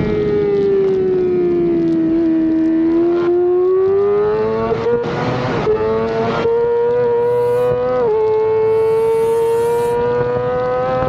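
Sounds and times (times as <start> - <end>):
motorcycle engine at high revs: 2.5 - 11.0.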